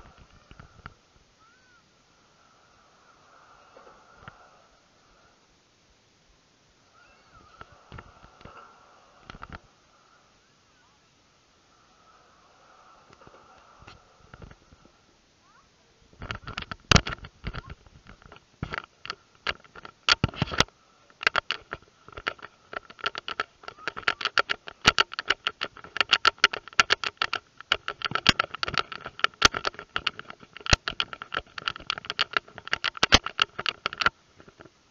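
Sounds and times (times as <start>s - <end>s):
faint steady tone: 0.0s - 16.3s
rapid sharp clicks and taps: 21.2s - 34.2s.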